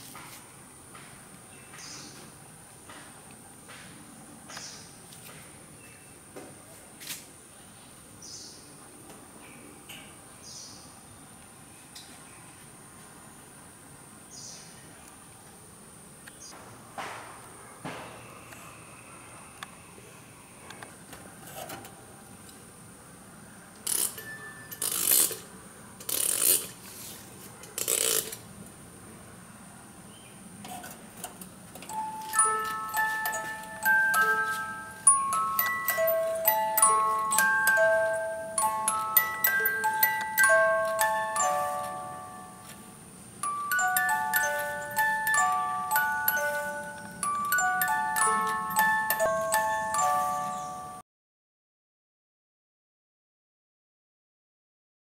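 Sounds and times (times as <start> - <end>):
music box tune: 23.9 - 25.1, 31.9 - 51.0
steady high hiss: 31.7 - 50.9.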